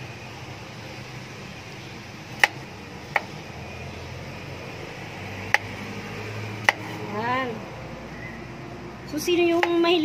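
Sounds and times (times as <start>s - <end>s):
cleaver chopping on board: 6.6s - 7.0s.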